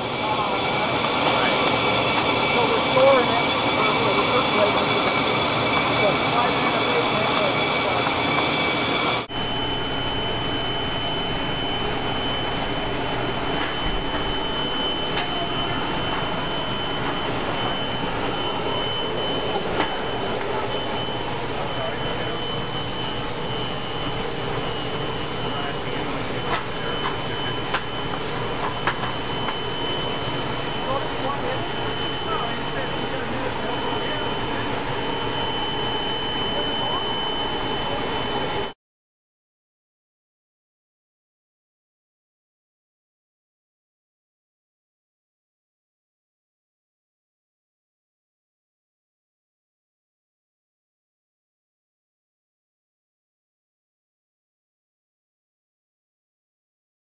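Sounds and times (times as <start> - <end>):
machinery whir and hiss: 0.0 - 38.7
high whine: 0.0 - 38.8.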